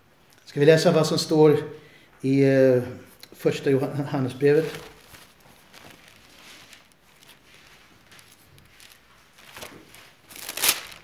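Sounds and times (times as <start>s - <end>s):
paper pages rustling: 4.3s - 11.0s.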